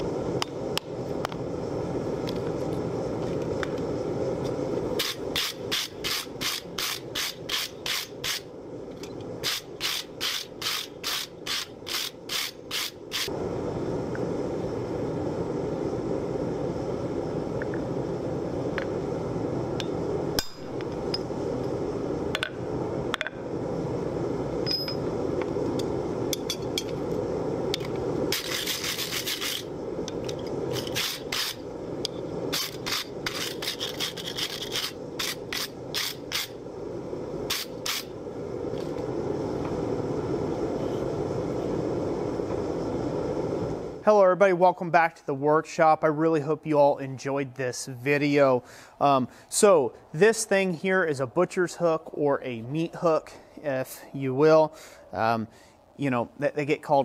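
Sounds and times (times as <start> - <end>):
hammer striking metal on anvil: 20.4 - 20.7
wire brush scrubbing metal: 28.3 - 29.7, 32.5 - 36.6.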